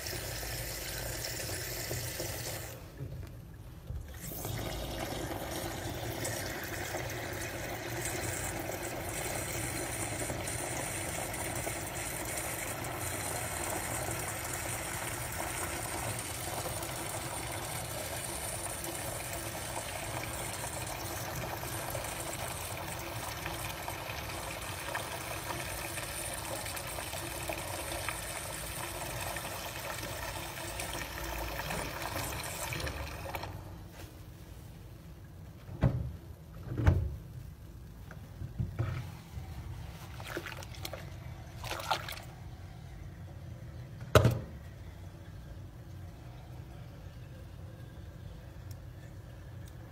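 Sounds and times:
tap water running into sink: 0.0 - 3.1, 3.9 - 33.6.

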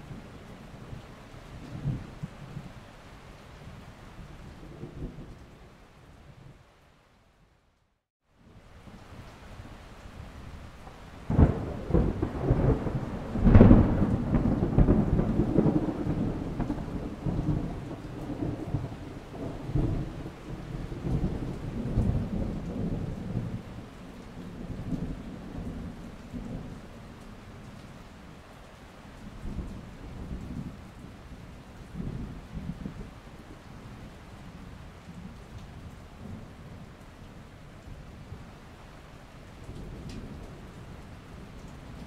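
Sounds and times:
steady rain: 0.0 - 42.0
thunder rumbling: 11.2 - 27.6
thunderclap: 11.3 - 23.6.

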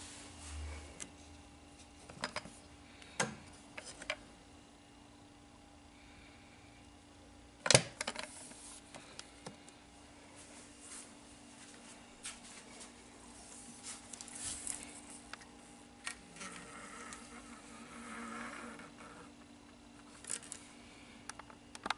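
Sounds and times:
low steady hum: 0.0 - 21.9.

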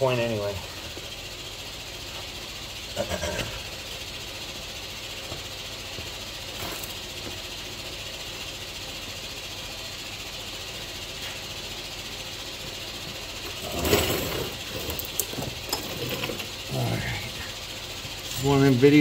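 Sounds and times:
metal tools clattering: 13.6 - 16.6.

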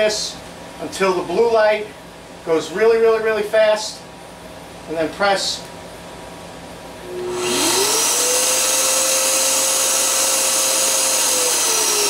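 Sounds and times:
dust extractor motor whine: 7.0 - 12.0.

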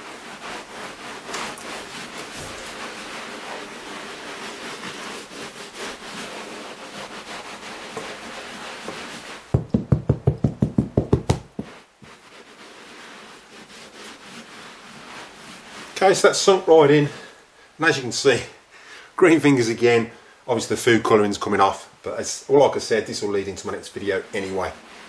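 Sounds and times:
gritty scrubbing of carpet: 0.0 - 9.6, 10.9 - 17.4, 22.9 - 25.0
dull thumps: 9.5 - 12.1.

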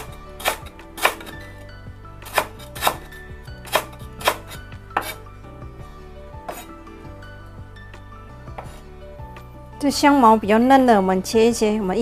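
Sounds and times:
knife chopping on cutting board: 0.0 - 1.4, 2.2 - 5.2.

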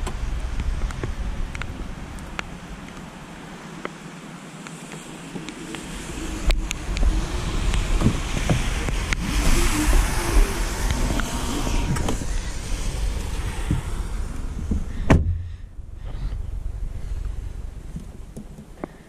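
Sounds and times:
wind rumbling on microphone: 0.0 - 19.0
power tailgate closing: 15.0 - 15.5.

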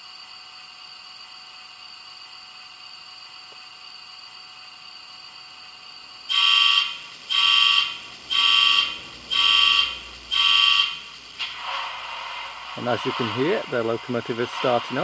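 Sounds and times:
alarm beeps from small speaker: 6.3 - 11.0.

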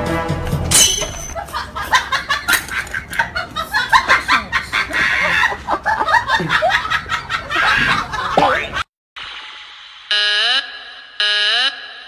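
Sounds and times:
hens clucking and squawking: 3.0 - 8.4.

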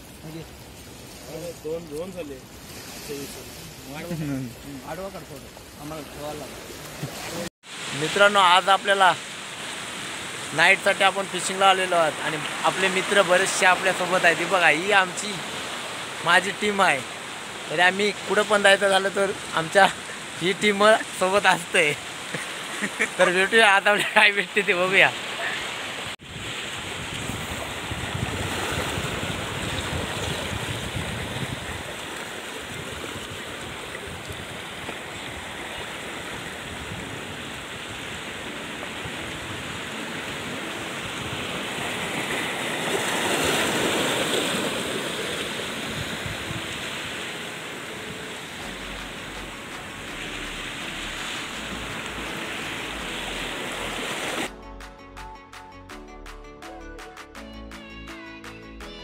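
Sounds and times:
sea surf washing on shore: 0.0 - 54.5
background music: 47.4 - 59.0.

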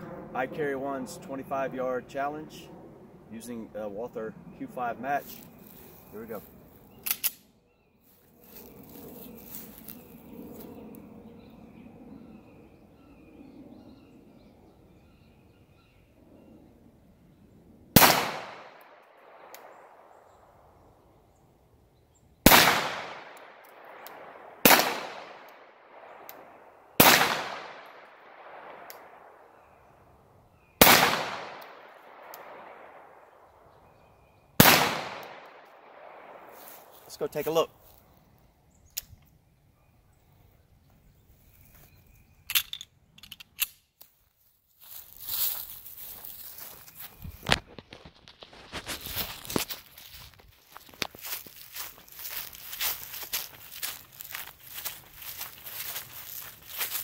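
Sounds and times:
pistol shots with echo: 18.0 - 20.1, 22.5 - 26.2, 27.0 - 29.3, 30.8 - 33.2, 34.6 - 36.5.

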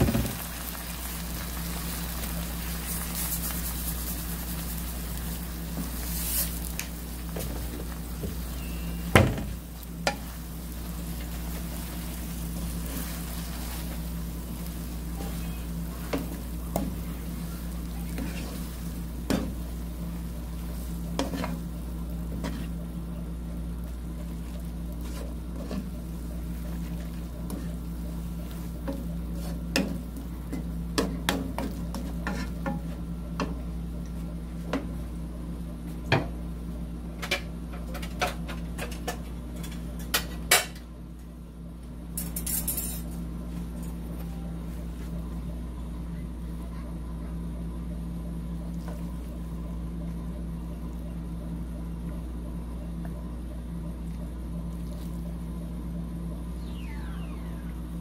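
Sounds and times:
spatula knocking and scraping pan: 20.8 - 21.6, 22.3 - 22.8, 28.5 - 33.6
low hum: 42.8 - 58.0.

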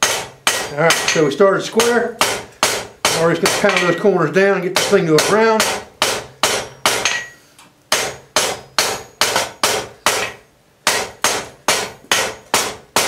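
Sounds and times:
hammer striking hot metal on anvil: 0.0 - 4.1, 4.7 - 13.0.

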